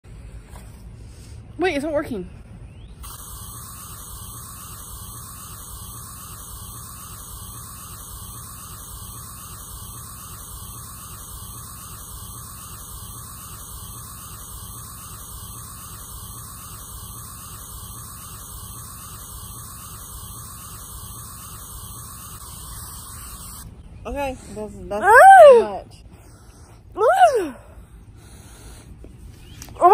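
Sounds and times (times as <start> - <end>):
aerosol can spraying hiss: 3.0 - 23.6.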